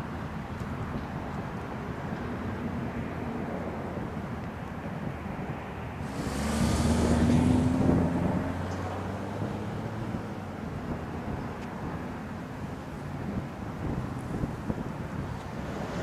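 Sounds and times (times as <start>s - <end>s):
jet engine rumble: 1.1s - 16.0s
hiss and hum: 6.0s - 8.4s.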